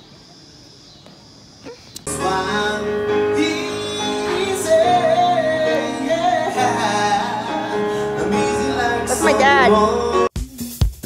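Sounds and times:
keyboard chords: 2.1 - 10.3
man singing into a microphone: 2.1 - 10.3.

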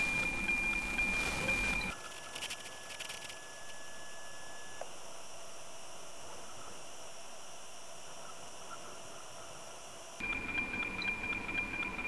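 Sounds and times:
satellite signal tone with ticking: 0.0 - 5.0, 10.2 - 12.0
thin steady tone: 0.0 - 5.0.

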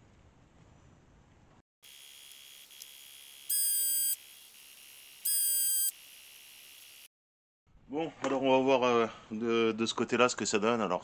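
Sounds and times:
loud electronic beeps: 3.5 - 4.2, 5.3 - 5.9.

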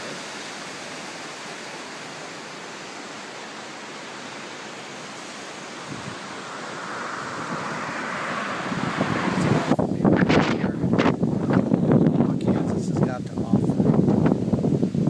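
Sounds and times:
creek rushing over rocks: 0.0 - 15.0.

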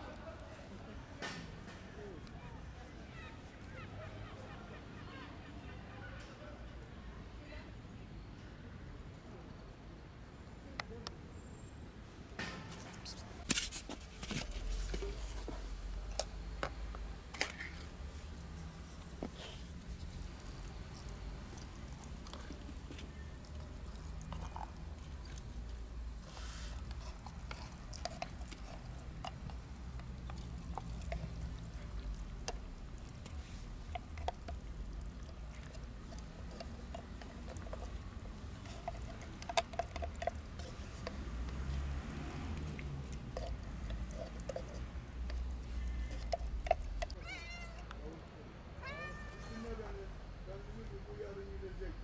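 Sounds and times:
wet food squelching and scraping: 12.7 - 47.2.

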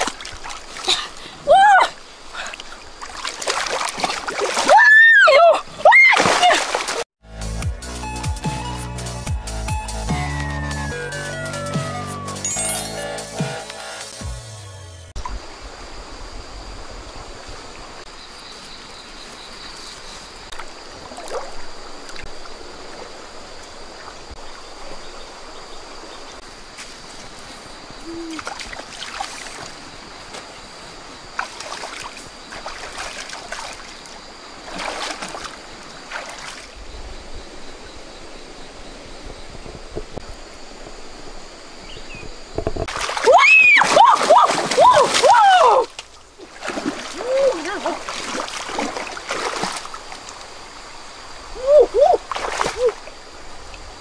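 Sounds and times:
feet wading through muddy water: 0.0 - 7.1, 18.6 - 24.2, 26.6 - 36.8, 42.8 - 50.8, 51.6 - 53.3
trickling water: 0.0 - 7.1, 20.3 - 37.8, 42.3 - 54.0
water splashing and sloshing: 0.0 - 7.2, 15.2 - 54.0.

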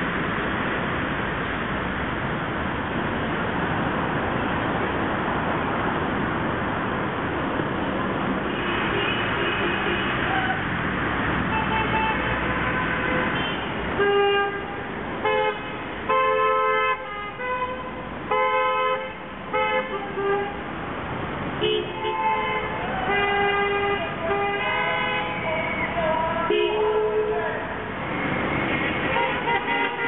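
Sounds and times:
street traffic noise: 0.0 - 30.0
car horns honking: 11.5 - 20.6, 21.6 - 27.4, 29.0 - 30.0.

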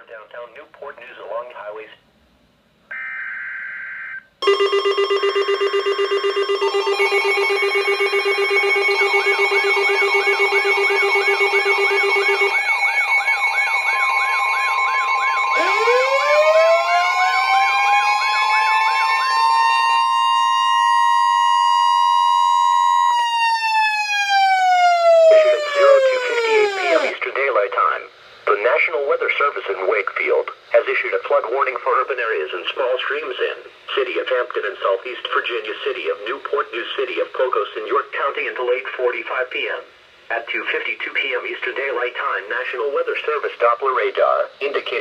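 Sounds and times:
data tones: 2.9 - 16.0
siren-like tone: 2.9 - 27.2
weather radio alert beeps: 25.2 - 27.2.

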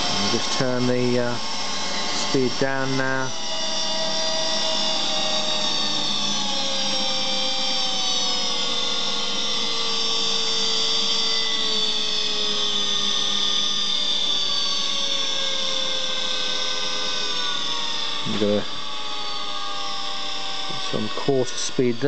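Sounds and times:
mixer motor whining: 0.0 - 22.0.

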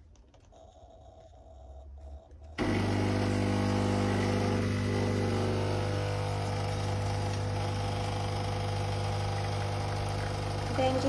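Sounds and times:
espresso machine pump humming: 2.6 - 11.0.

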